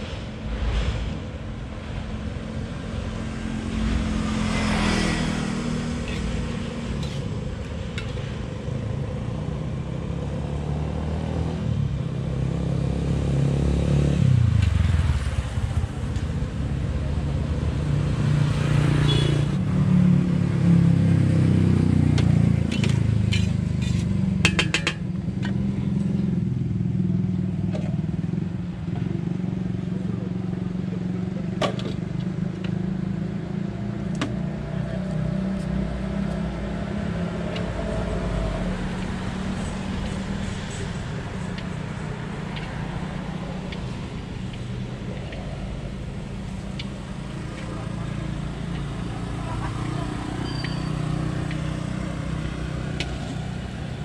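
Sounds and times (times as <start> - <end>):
motorcycles and cars passing: 0.0 - 54.0
metal spatula scraping wok: 22.7 - 24.9.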